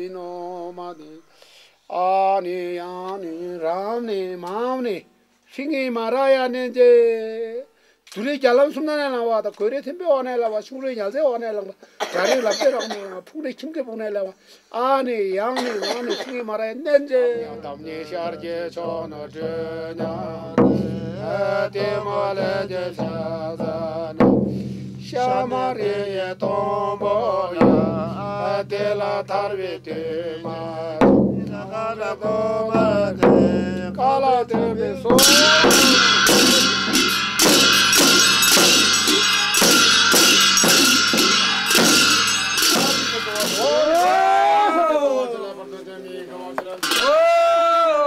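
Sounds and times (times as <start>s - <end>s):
man chanting: 0.0s - 1.3s, 1.9s - 24.2s, 25.1s - 37.0s, 40.8s - 48.0s
frame drum beating: 17.7s - 44.6s
loud ringing percussion: 25.0s - 44.5s, 46.8s - 47.5s.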